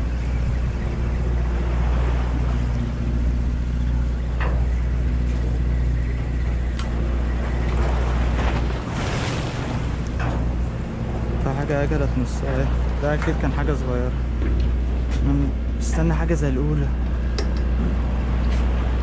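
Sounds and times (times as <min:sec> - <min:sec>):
boat engine humming: 0:00.0 - 0:19.0
choppy sea washing: 0:00.0 - 0:19.0
wind: 0:00.0 - 0:19.0.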